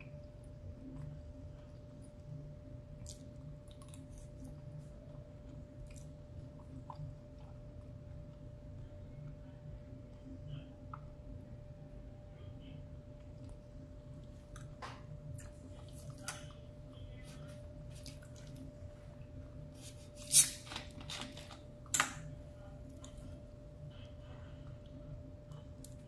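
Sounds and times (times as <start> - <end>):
faint steady hum: 0.0 - 26.0
chewing and mouth clicks: 2.9 - 8.4, 14.2 - 16.7.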